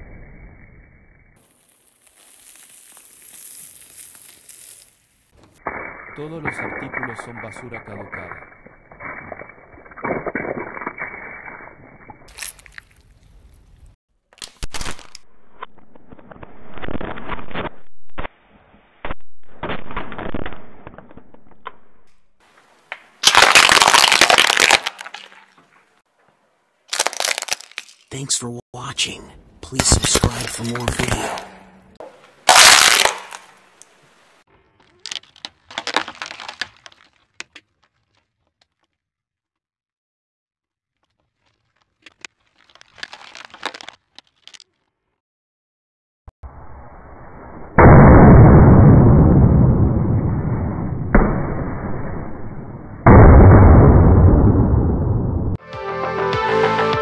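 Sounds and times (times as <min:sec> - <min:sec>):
water balloons bursting: 0:23.2 - 0:25.6, 0:26.9 - 0:27.9, 0:32.4 - 0:33.6
plastic pots crackling: 0:34.5 - 0:38.9, 0:41.0 - 0:44.8.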